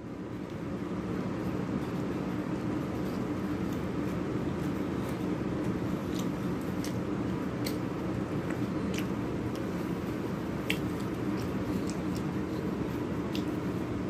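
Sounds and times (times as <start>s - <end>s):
low background hum: 0.0s - 14.0s
man chewing food: 0.4s - 14.0s
wet mouth clicks: 10.6s - 12.3s.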